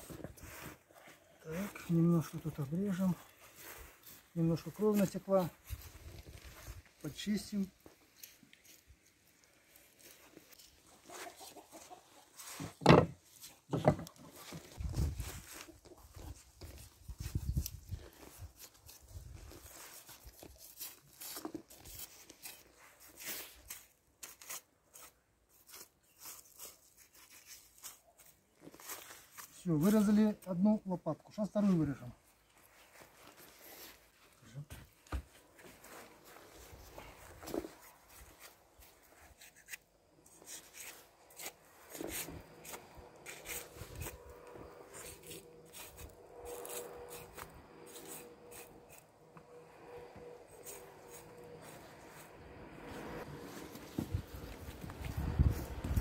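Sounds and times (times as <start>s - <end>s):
knife cutting through meat: 40.4s - 44.2s, 45.0s - 49.1s.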